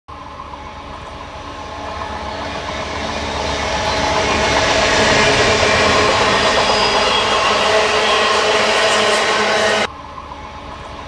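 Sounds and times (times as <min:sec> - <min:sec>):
train approaching: 0:00.1 - 0:11.0.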